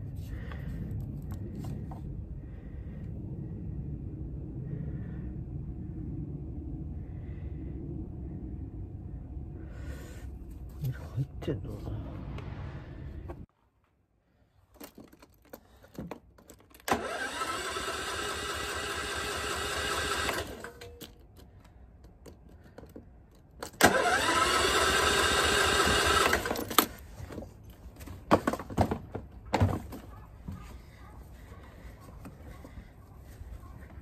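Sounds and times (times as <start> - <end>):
handling clicks and knocks: 14.7 - 16.9, 20.7 - 23.8
electric starter cranking engine: 16.8 - 20.9, 23.7 - 26.8.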